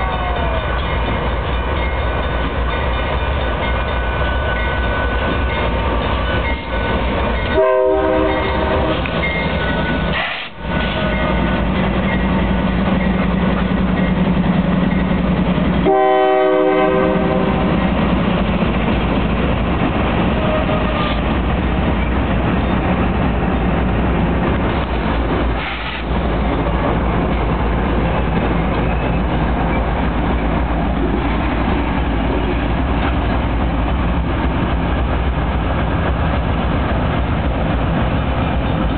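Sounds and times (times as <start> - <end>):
diesel locomotive engine drone: 0.0 - 38.9
multi-tone air horn blasts: 7.6 - 9.0, 15.8 - 17.7.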